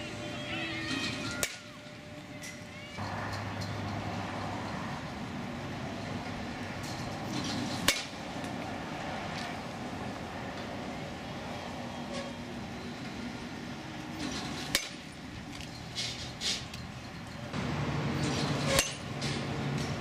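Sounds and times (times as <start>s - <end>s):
baseball bat hitting ball: 7.8s - 8.2s.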